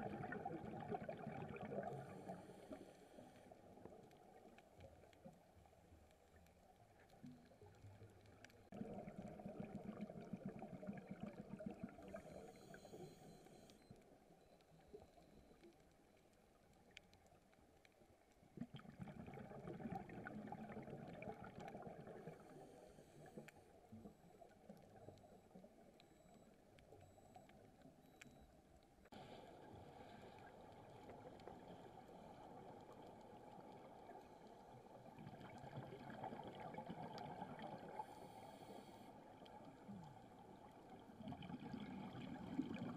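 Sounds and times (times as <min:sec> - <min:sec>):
muffled underwater gurgling: 0:00.0 - 0:04.3, 0:08.5 - 0:14.0, 0:18.6 - 0:27.8, 0:29.1 - 0:42.9.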